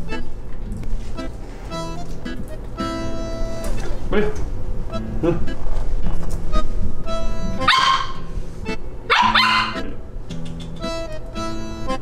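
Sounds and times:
background music: 0:01.7 - 0:03.9, 0:06.5 - 0:07.8, 0:09.2 - 0:12.0
dog barking: 0:07.6 - 0:08.3, 0:09.1 - 0:09.9.

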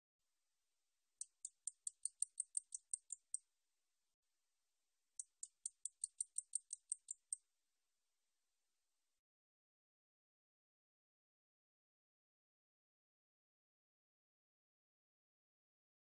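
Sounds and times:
katydid ticking song: 0:01.2 - 0:03.4, 0:05.2 - 0:07.4.

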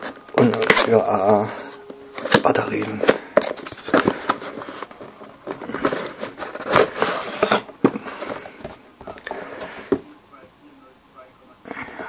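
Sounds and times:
cardboard scraping and rustling: 0:00.0 - 0:08.8.

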